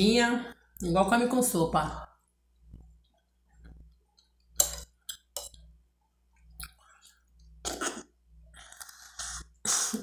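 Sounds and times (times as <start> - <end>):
person chewing: 6.4 - 9.6
wet mouth clicks: 6.6 - 6.8.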